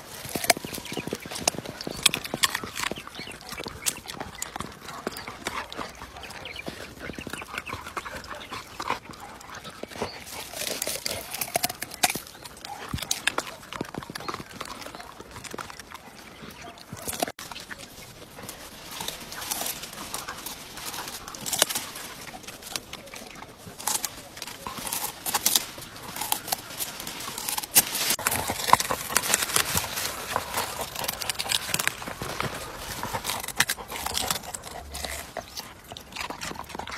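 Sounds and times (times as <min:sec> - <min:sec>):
dog crunching vegetables: 0:00.0 - 0:36.9.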